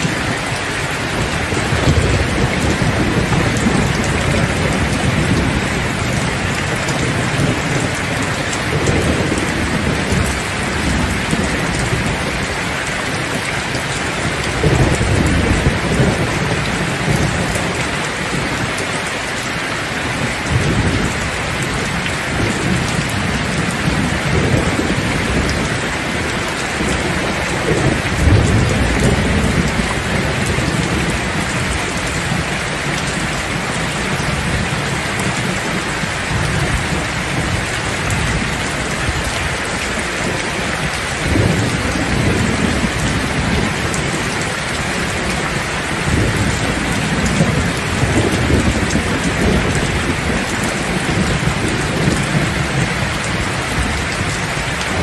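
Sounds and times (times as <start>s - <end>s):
heavy rain falling: 0.0s - 55.0s
thunder rumbling: 0.0s - 55.0s.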